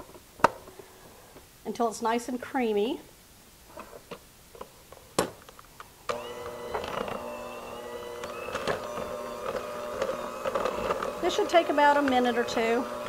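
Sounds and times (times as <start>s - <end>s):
electric hand mixer running: 6.1s - 13.0s.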